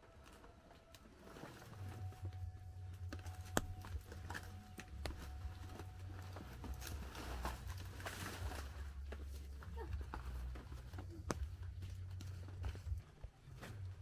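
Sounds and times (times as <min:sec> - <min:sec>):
dry leaves rustling and crackling: 0:04.0 - 0:11.1.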